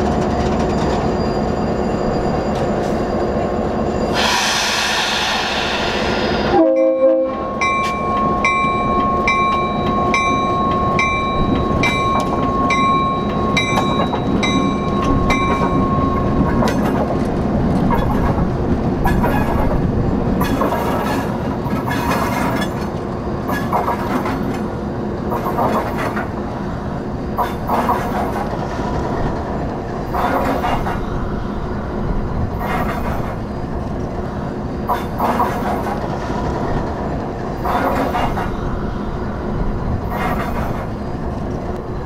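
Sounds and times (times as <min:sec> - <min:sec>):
locomotive engine and rail noise: 0:00.0 - 0:42.0
air hiss: 0:04.1 - 0:07.0
locomotive horn blast: 0:06.5 - 0:07.6
locomotive bell ringing: 0:06.6 - 0:16.6.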